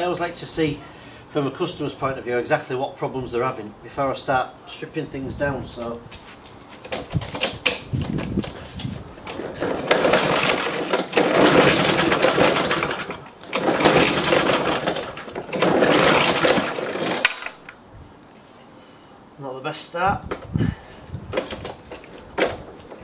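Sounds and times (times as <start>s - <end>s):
lawnmower engine running roughly: 7.0s - 17.7s.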